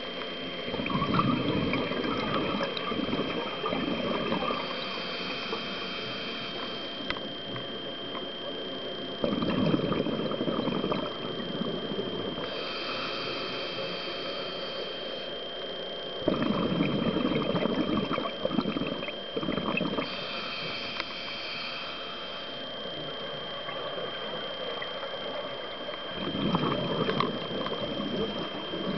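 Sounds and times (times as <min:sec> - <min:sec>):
steady high whine: 0:00.0 - 0:28.9
exhaled bubbles rushing: 0:00.7 - 0:04.9, 0:09.2 - 0:12.5, 0:16.2 - 0:20.1, 0:22.8 - 0:28.9
regulator hissing inhalation: 0:04.3 - 0:07.1, 0:12.4 - 0:15.4, 0:18.5 - 0:22.6.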